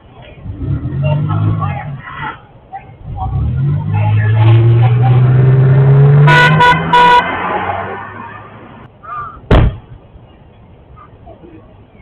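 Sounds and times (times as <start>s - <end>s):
vehicle horn honks: 6.2s - 7.5s
sharp bang: 9.5s - 9.9s.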